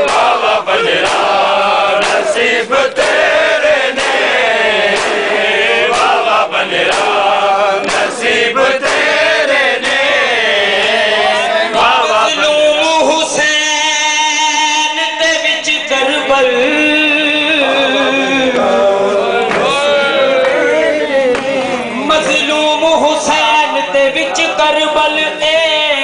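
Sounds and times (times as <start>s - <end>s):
crowd of men chanting: 0.0s - 26.0s
hands slapping bare chests: 4.9s - 5.2s, 7.8s - 8.2s.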